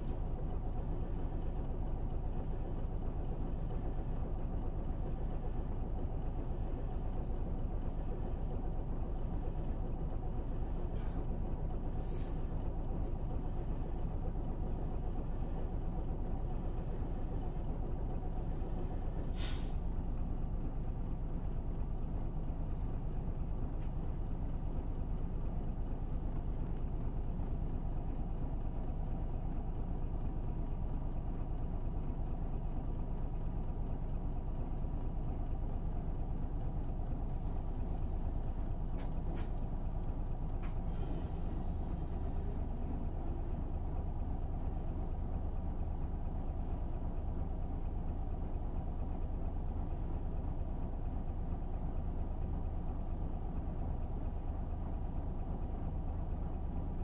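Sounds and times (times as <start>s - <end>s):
bus engine running: 0.0s - 57.0s
air brake hisses: 19.3s - 19.9s, 40.9s - 41.9s.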